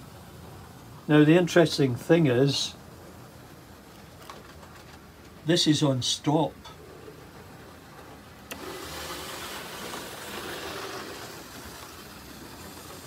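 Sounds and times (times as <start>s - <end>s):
model locomotive whirring: 6.1s - 13.0s.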